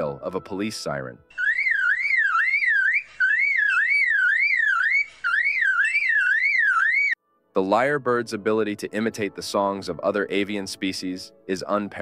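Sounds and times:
lyrebird mimicking a siren: 0:01.3 - 0:07.2.

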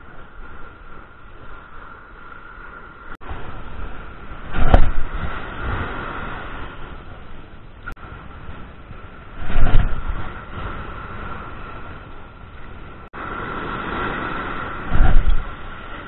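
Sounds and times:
surf breaking on beach: 0:00.0 - 0:16.0
wind buffeting microphone: 0:00.0 - 0:16.0.

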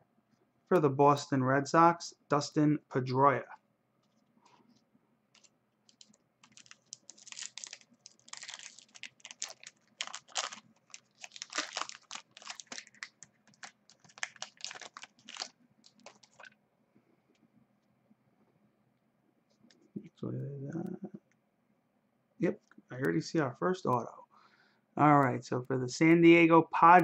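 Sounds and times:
foil wrapper crinkling and tearing: 0:05.4 - 0:16.6.

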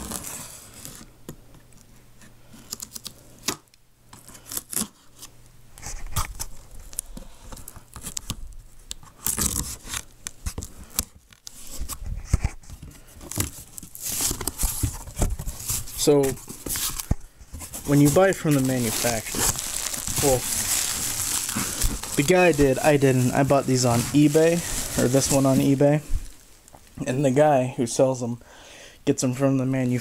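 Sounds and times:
cardboard tearing and scraping: 0:00.0 - 0:01.0, 0:09.2 - 0:10.6, 0:13.3 - 0:26.4.

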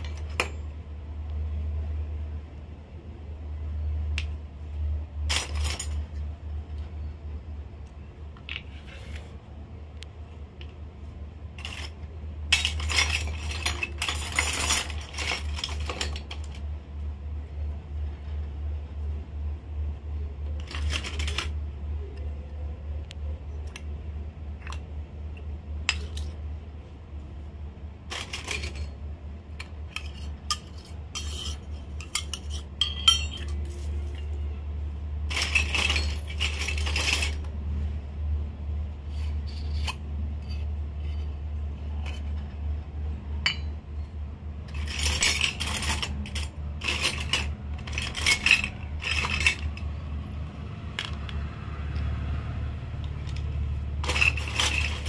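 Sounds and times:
toy dishes clinking on concrete: 0:11.6 - 0:16.7, 0:20.5 - 0:21.6, 0:25.8 - 0:26.4, 0:28.1 - 0:29.0, 0:29.6 - 0:34.3, 0:35.3 - 0:37.6, 0:43.4 - 0:43.9, 0:44.7 - 0:49.9, 0:53.0 - 0:55.0.

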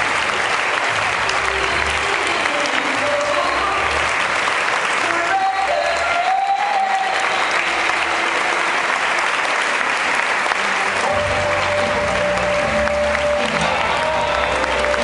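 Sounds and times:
audience applauding: 0:00.0 - 0:15.0
runway music with bass line: 0:10.9 - 0:15.0.

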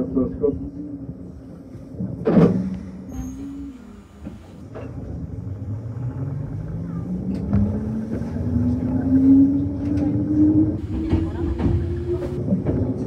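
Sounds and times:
train motor whine rising: 0:02.7 - 0:06.1, 0:10.8 - 0:12.4.

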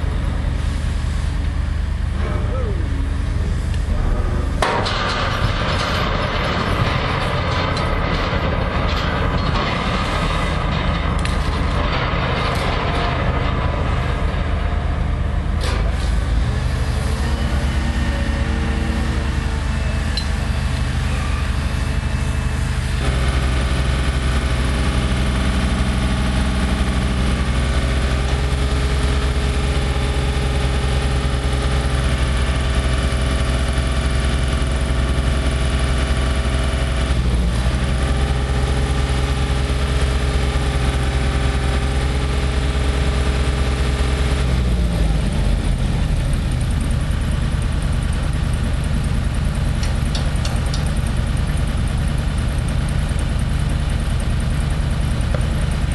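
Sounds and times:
diesel engines running: 0:00.0 - 0:55.9
metallic clanks: 0:49.8 - 0:51.6.

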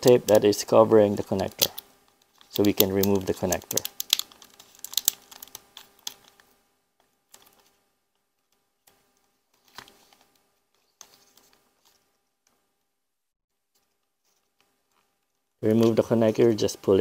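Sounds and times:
tape peeling with crackling clicks: 0:01.2 - 0:06.5.

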